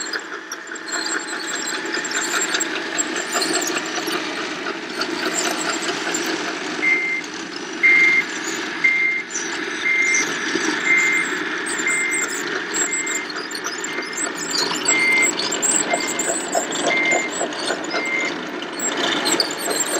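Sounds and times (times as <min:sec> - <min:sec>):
model vehicle drive running: 0:00.0 - 0:19.9
reversing beeper: 0:06.8 - 0:18.4.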